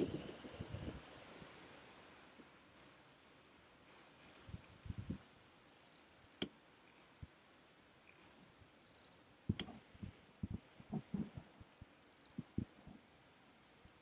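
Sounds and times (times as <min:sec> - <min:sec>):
sharp clicks of fishing reel: 0:02.7 - 0:04.8, 0:05.7 - 0:06.1, 0:08.1 - 0:09.2, 0:12.0 - 0:12.4.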